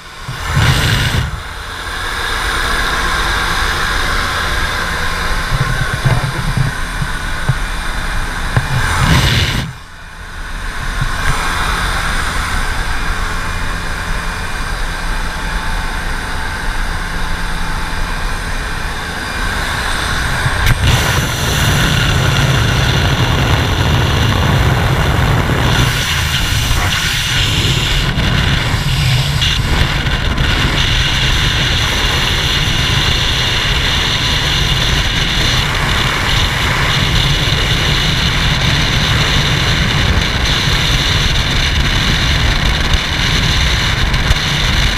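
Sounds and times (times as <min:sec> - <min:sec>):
aircraft engine drone: 0:00.0 - 0:44.9
wind rushing and buffeting: 0:00.0 - 0:44.9.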